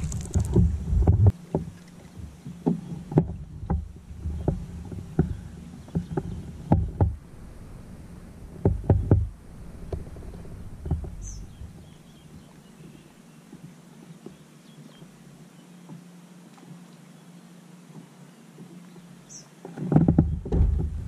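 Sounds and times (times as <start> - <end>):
low rumble: 0.0 - 1.4, 3.3 - 12.5, 20.2 - 21.0
water and wind: 0.0 - 21.0
knocks on a kayak: 5.2 - 7.2, 8.6 - 10.0, 19.8 - 21.0.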